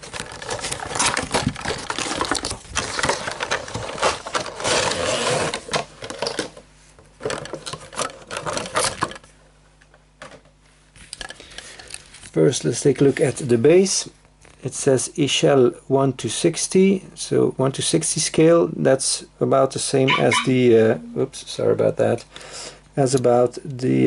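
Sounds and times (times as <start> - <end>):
packaging rattling and crackling: 0.0 - 4.9.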